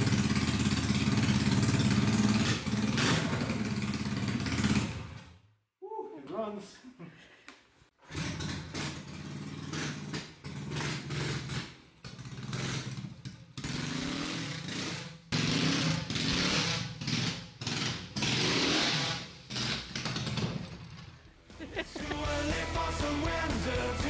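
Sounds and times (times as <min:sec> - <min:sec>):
small gas engine revving: 0:00.0 - 0:05.3, 0:08.0 - 0:21.1.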